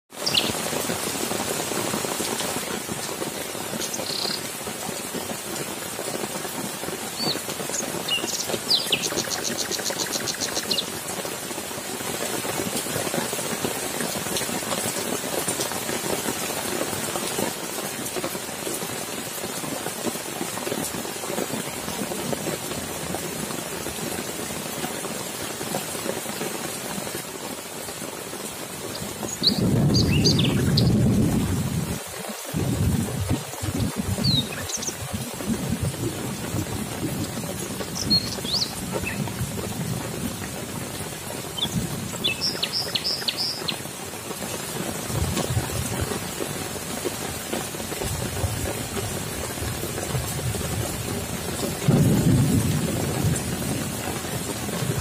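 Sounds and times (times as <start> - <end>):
heavy rain on leaves: 0.1 - 55.0
birds chirping: 0.2 - 0.6, 3.8 - 4.5, 7.2 - 10.9, 29.2 - 31.0, 34.2 - 35.0, 38.0 - 39.2, 41.6 - 43.8
thunder rumble: 29.4 - 40.4, 51.8 - 55.0.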